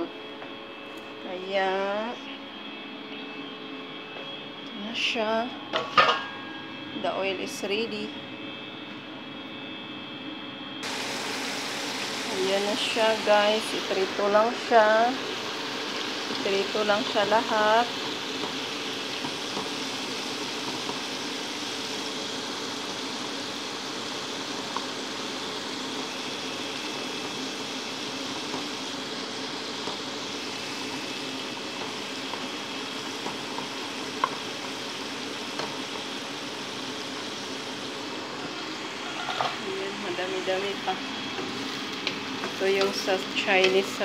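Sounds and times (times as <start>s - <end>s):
chicken deep-frying in oil: 10.8s - 44.0s.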